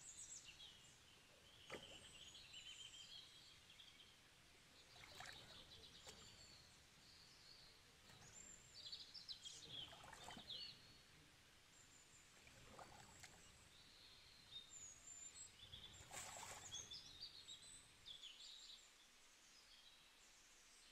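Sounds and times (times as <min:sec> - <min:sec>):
faint birds chirping: 0:00.0 - 0:20.9
soft splashy thumps: 0:01.7 - 0:02.2, 0:05.0 - 0:06.4.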